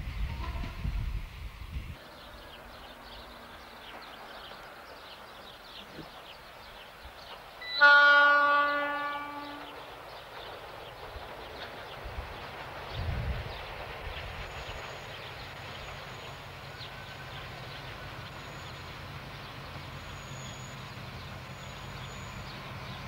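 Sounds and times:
locomotive horn blast: 7.6 - 9.8.

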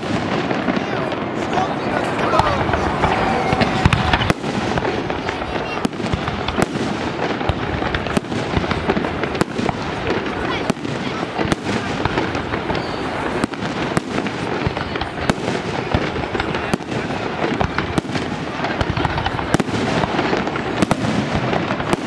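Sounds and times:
firework shells bursting: 0.0 - 10.4.

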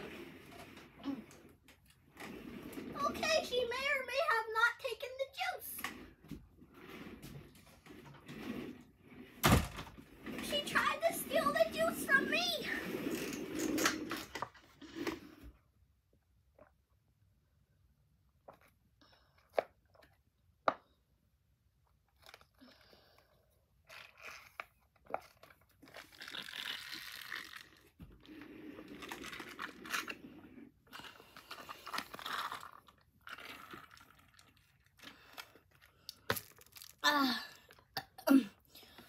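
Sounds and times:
chewing and crunching chocolate: 22.1 - 37.0.

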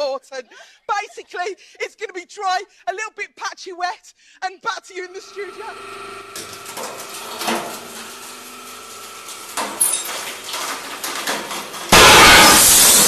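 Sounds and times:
hydraulic press humming: 5.4 - 13.0
glass cracking and creaking: 9.3 - 13.0.

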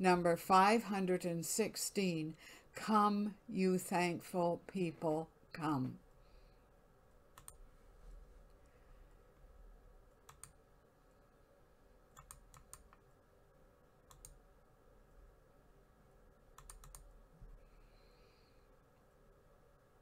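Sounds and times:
low room hum: 0.0 - 20.0
faint computer clicks: 7.3 - 7.6, 14.1 - 14.4, 16.6 - 17.1.

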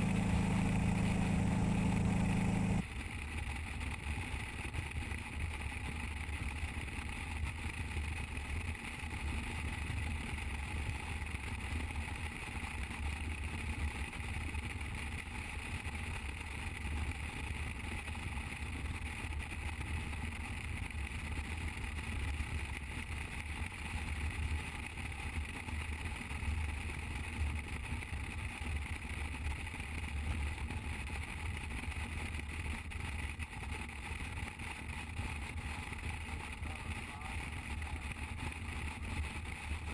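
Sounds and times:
motorcycle engine drone: 0.0 - 5.7, 32.2 - 39.9.

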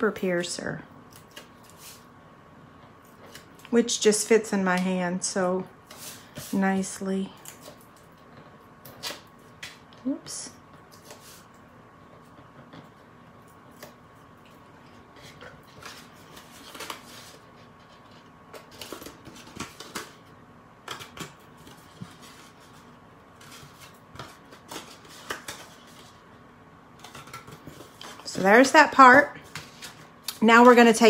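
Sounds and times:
stiff paper crinkling and rustling: 13.6 - 20.2.

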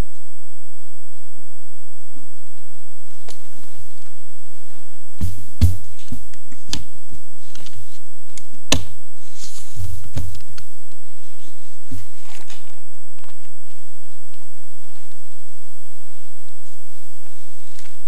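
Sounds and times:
papers handled: 5.2 - 13.8.

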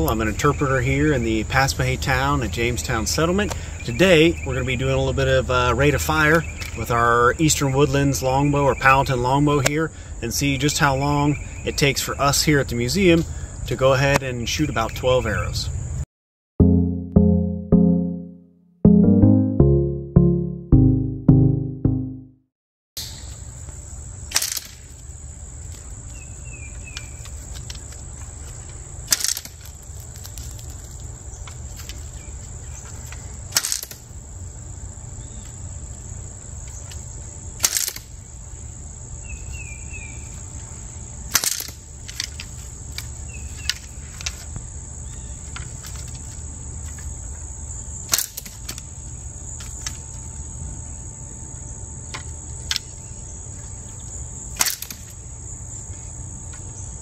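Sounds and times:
high insect drone: 34.0 - 57.0
longbow shot snapping: 54.6 - 55.0.

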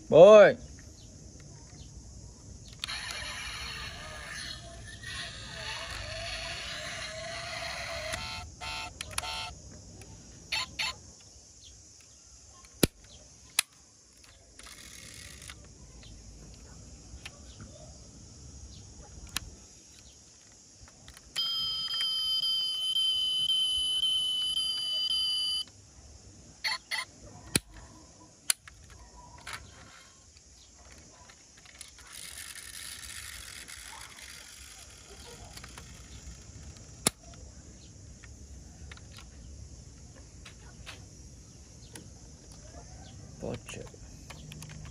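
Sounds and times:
toy electronic tone: 2.8 - 9.5, 10.5 - 10.9, 21.4 - 25.7, 26.6 - 27.1.

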